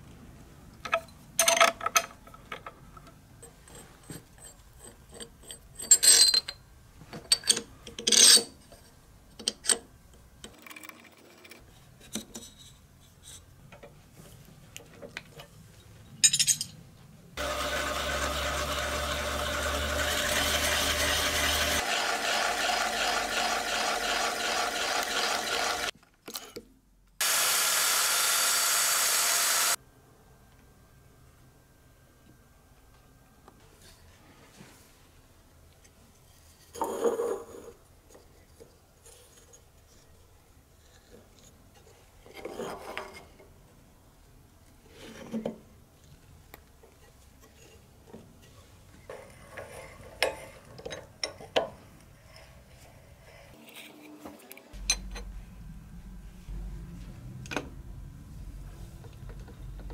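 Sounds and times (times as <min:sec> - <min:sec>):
plunge saw cutting plywood: 0:17.4 - 0:25.9, 0:27.2 - 0:29.8
power machine humming: 0:17.4 - 0:25.9, 0:27.2 - 0:29.8
spanner clanking and scraping metal: 0:54.8 - 0:55.4.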